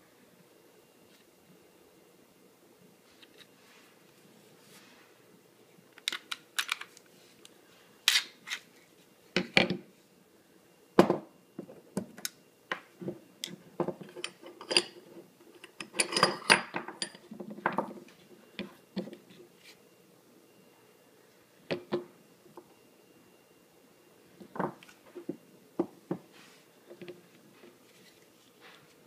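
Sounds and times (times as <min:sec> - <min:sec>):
pistol parts clicking and clacking: 0:06.0 - 0:06.9.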